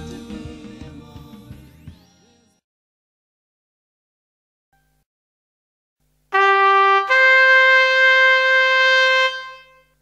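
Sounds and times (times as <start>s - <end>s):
brass horn notes: 6.3s - 10.0s.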